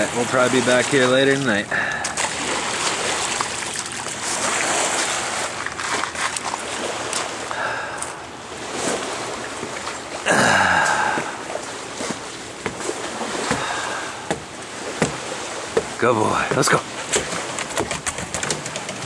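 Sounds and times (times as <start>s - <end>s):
water splashing from swimming dog: 0.0s - 7.7s.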